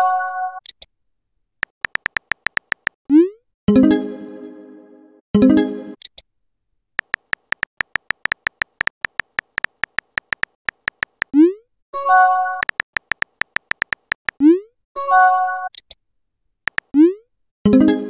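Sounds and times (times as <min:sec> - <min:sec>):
phone keyboard tap clicks: 0:01.6 - 0:03.0, 0:07.0 - 0:11.3, 0:12.6 - 0:14.4, 0:16.7 - 0:16.9.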